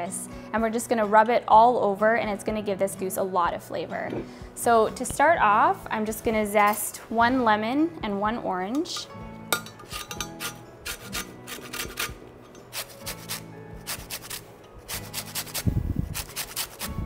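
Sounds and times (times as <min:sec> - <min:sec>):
lemon rind rasping on grater: 0:10.4 - 0:17.0.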